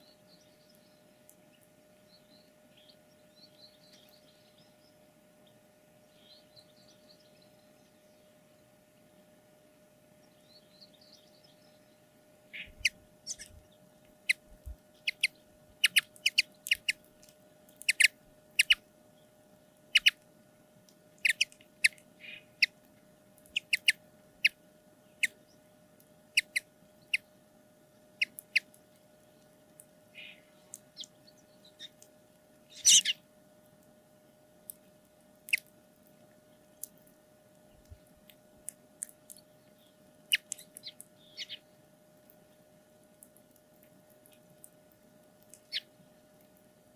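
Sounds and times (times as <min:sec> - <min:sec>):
birds cracking seed hulls: 0:12.5 - 0:18.8, 0:34.6 - 0:46.8.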